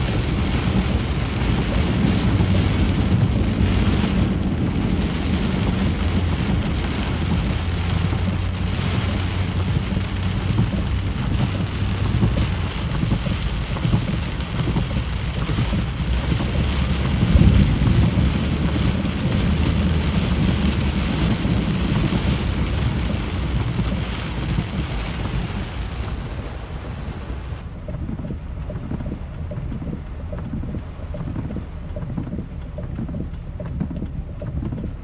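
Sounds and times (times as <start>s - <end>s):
deep rumble: 0.0s - 35.0s
torrential rain hissing: 0.0s - 35.0s.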